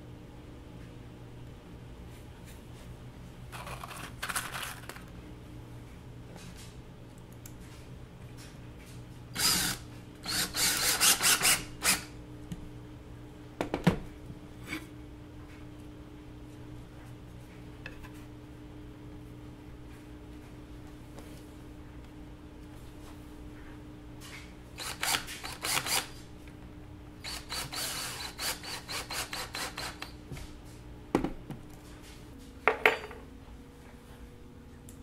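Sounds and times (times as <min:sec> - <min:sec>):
cordless drill driving screws: 0:09.4 - 0:12.1, 0:24.8 - 0:26.1, 0:27.2 - 0:30.1.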